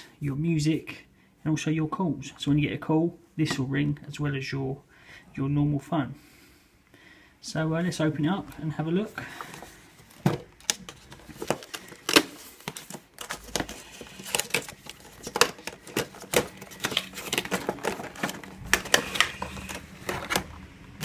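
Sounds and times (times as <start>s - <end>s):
packaging crinkling: 9.4s - 21.0s
cardboard box being opened: 10.0s - 20.5s.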